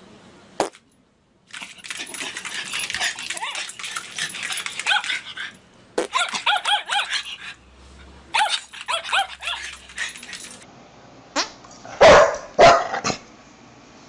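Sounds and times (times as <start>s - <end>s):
small dog yipping: 6.1s - 7.5s, 8.4s - 9.8s.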